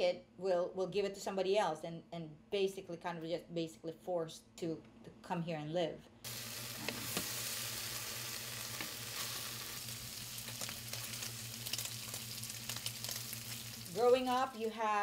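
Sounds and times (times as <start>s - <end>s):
meat sizzling in oil: 6.3s - 14.8s.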